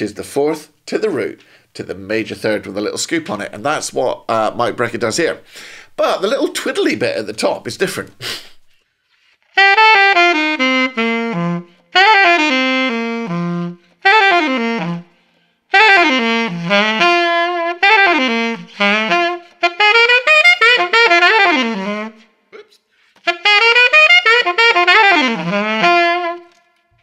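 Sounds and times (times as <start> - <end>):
alto saxophone blues phrases: 0.0 - 8.4, 9.5 - 26.7.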